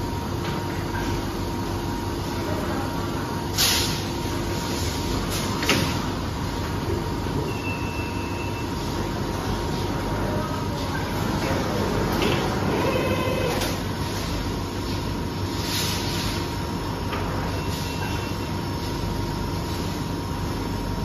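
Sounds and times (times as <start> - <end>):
machinery humming: 6.1 - 21.0
high beep: 7.5 - 8.7.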